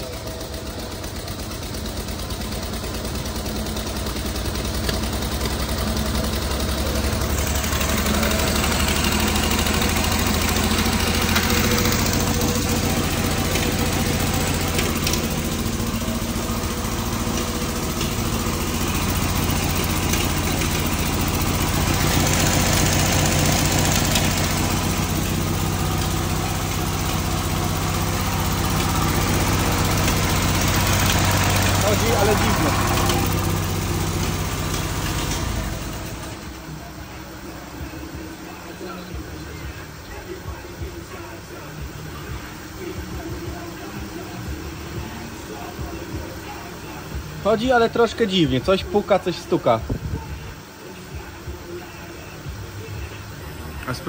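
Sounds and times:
engine knocking and tapping: 0:00.0 - 0:50.6
car engine idling unevenly: 0:00.0 - 0:54.0.

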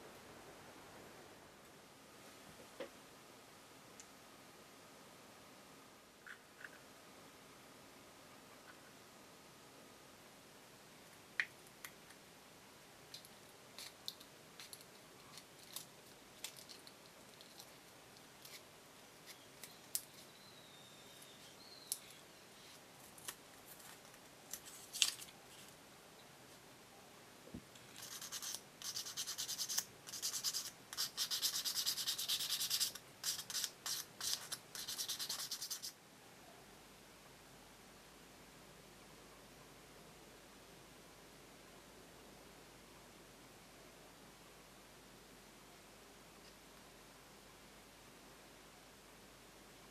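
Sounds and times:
rapid sanding strokes: 0:28.0 - 0:35.9.

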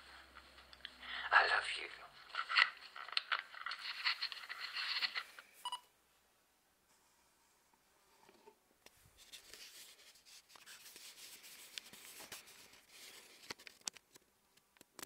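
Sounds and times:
phone handling rubbing and rustling: 0:02.2 - 0:05.6.

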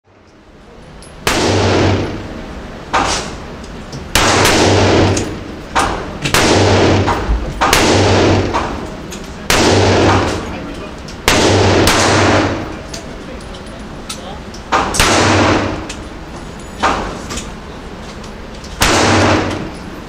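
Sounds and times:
echoing gunshots: 0:01.2 - 0:02.4, 0:04.1 - 0:10.6, 0:11.2 - 0:12.9, 0:14.7 - 0:16.0, 0:18.8 - 0:19.8.

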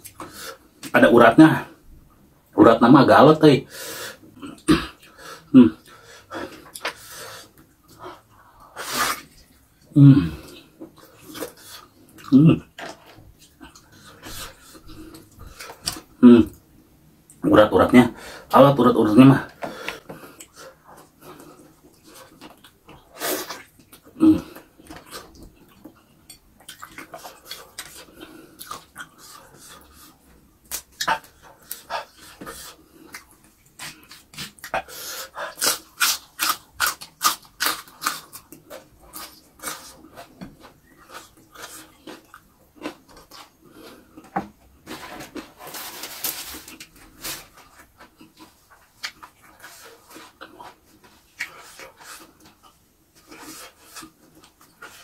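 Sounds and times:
wet chewing and lip-smacking: 0:24.8 - 0:44.3.

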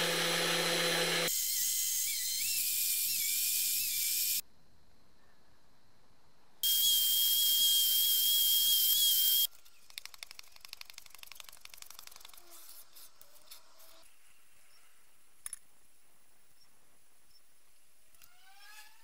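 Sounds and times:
high-speed rotary tool whining: 0:00.0 - 0:04.4, 0:06.6 - 0:09.5.

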